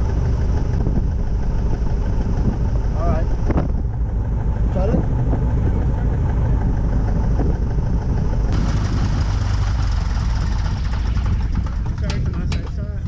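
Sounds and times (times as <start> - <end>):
aircraft engine and propeller idling: 0.0 - 13.0.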